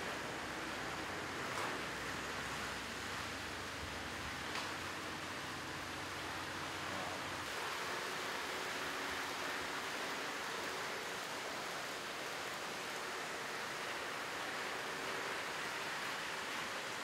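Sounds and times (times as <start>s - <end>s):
steady hiss-like noise: 0.0s - 17.0s.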